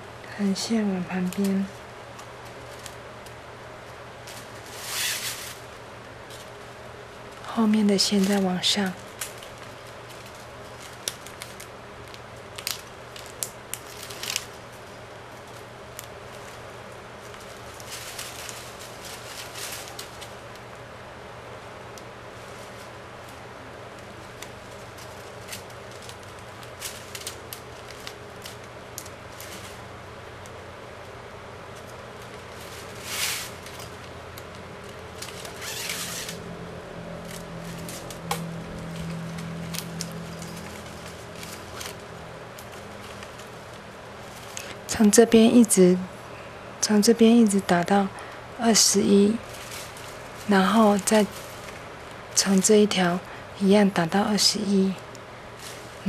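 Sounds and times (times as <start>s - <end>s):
plastic straps rasping: 1.3s - 3.4s, 4.2s - 6.7s, 7.3s - 20.8s, 24.0s - 29.9s, 31.7s - 36.5s, 37.2s - 44.9s, 49.1s - 52.2s
strap scraping against strap: 4.3s - 5.7s, 32.4s - 34.0s, 35.2s - 36.4s.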